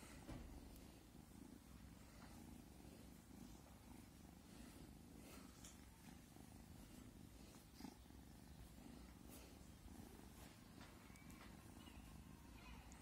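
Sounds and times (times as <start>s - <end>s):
kitten purring: 0.0s - 13.0s
light scratchy clicks: 9.0s - 13.0s.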